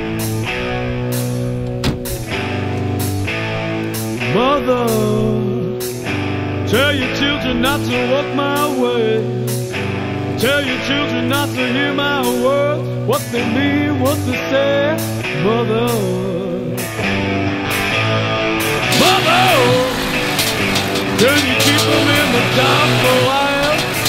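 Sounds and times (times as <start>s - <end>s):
electric guitar: 0.0s - 24.0s
person singing: 4.2s - 6.0s, 6.7s - 9.5s, 10.4s - 16.9s, 18.8s - 24.0s
steady drum beat: 18.6s - 24.0s.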